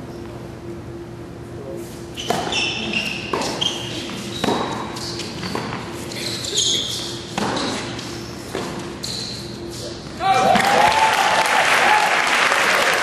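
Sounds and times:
sneakers squeaking on court: 0:02.0 - 0:10.2
racket striking tennis ball: 0:02.2 - 0:06.0, 0:06.8 - 0:09.0
tennis ball bouncing: 0:02.2 - 0:06.1, 0:06.8 - 0:09.0.

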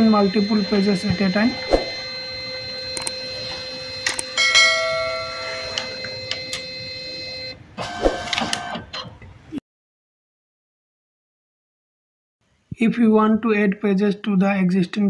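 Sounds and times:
document feeder motor whine: 0:00.0 - 0:08.9.

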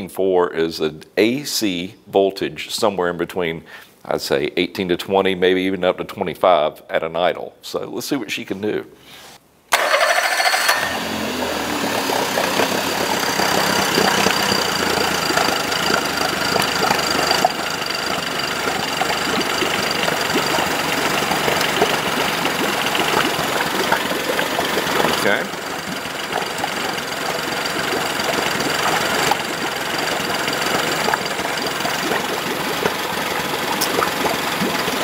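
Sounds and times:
outboard motor idling: 0:09.8 - 0:35.0.

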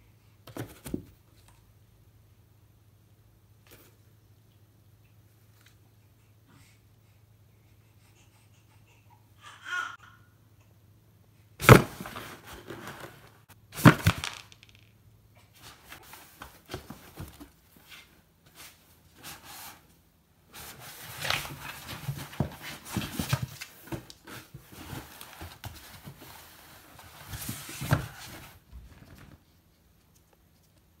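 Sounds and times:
cardboard rustling: 0:11.6 - 0:14.6, 0:20.5 - 0:29.5.

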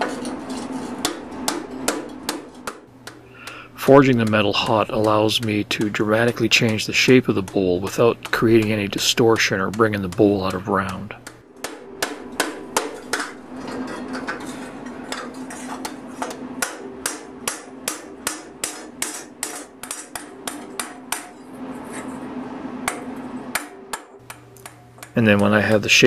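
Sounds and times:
hammer striking hot steel: 0:00.0 - 0:22.0, 0:22.8 - 0:26.0
steady low hum: 0:00.0 - 0:26.0.

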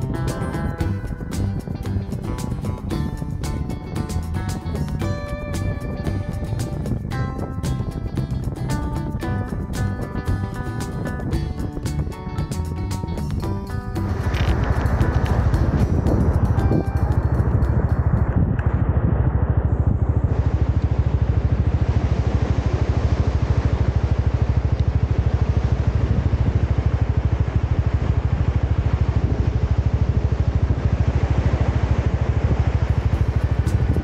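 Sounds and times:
motorcycle engine running: 0:00.0 - 0:34.0.

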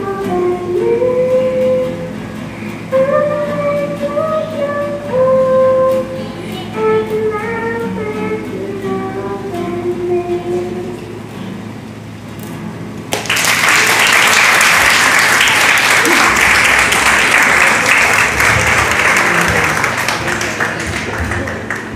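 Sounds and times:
audience applauding: 0:13.1 - 0:21.9.

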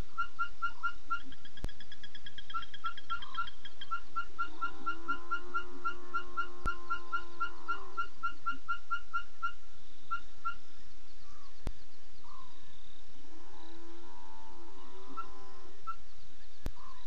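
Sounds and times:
wavering animal call: 0:00.0 - 0:01.4, 0:02.2 - 0:10.6, 0:13.3 - 0:16.0.

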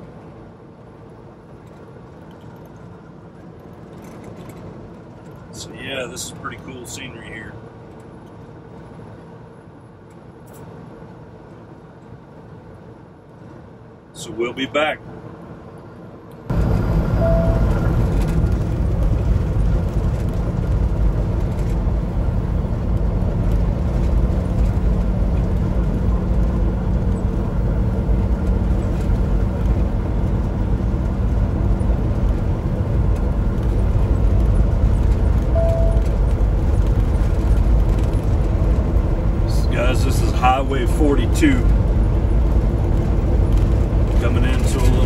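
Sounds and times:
tyre and road noise: 0:00.0 - 0:45.0
truck diesel engine running: 0:16.5 - 0:45.0.

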